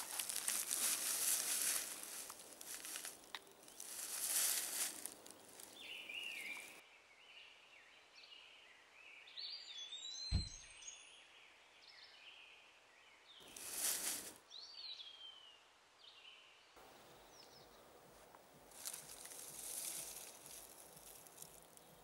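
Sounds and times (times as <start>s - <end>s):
birds chirping: 0.0s - 6.8s
dry leaves rustling: 0.0s - 6.8s, 13.4s - 14.4s, 18.1s - 22.0s
forest ambience: 0.0s - 9.5s, 11.9s - 22.0s
dull thump: 10.3s - 10.6s.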